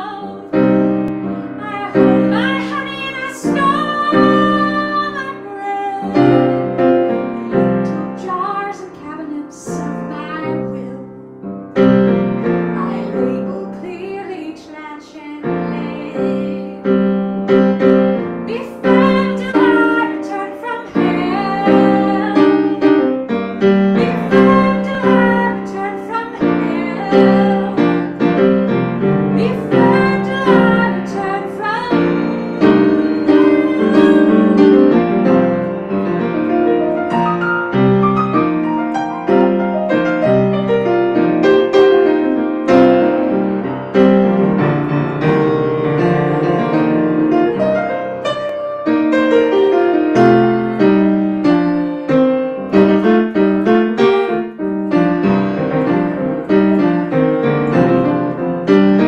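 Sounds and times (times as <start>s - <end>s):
woman singing: 0.0s - 17.9s, 18.5s - 35.6s, 46.2s - 48.2s, 52.9s - 57.2s
grand piano playing: 0.0s - 59.0s.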